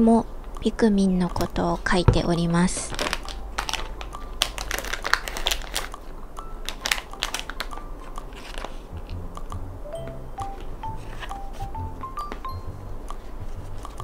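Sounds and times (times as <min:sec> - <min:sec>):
soft background music: 0:00.0 - 0:14.0
crinkling and clicking on desk: 0:02.1 - 0:09.1.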